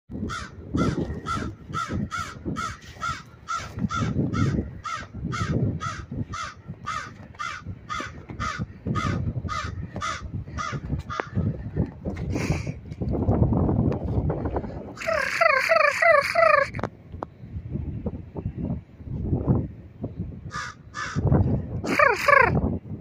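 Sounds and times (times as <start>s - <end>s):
crow cawing: 0.3s - 11.5s, 20.5s - 21.3s.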